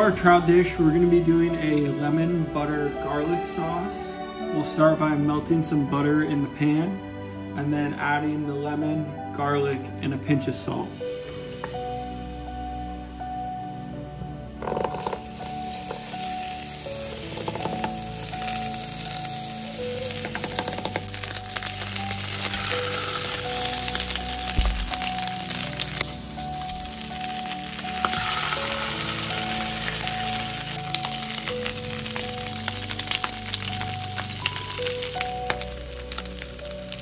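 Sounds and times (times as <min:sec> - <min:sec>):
fish sizzling in butter: 0:14.6 - 0:37.0
dull thump: 0:24.6 - 0:25.0.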